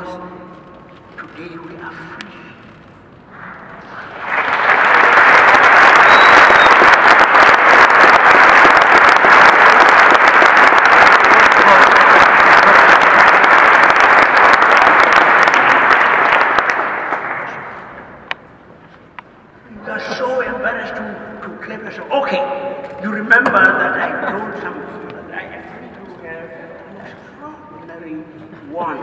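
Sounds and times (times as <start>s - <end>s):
audience applauding: 3.6s - 18.2s.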